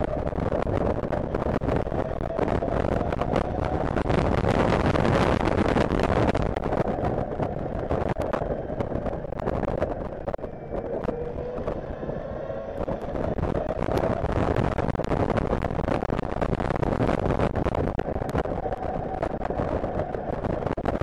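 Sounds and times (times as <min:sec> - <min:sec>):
wind buffeting: 0:00.0 - 0:21.0.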